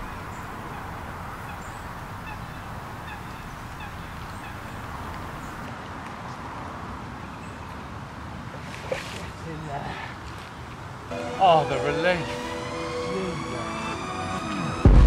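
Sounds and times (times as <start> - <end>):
distant waterfowl calls: 0.0 - 5.7.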